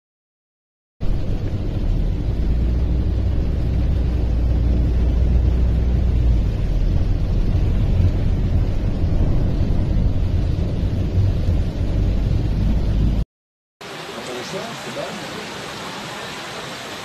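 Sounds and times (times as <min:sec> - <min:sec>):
car cabin rumble: 0:01.0 - 0:13.2.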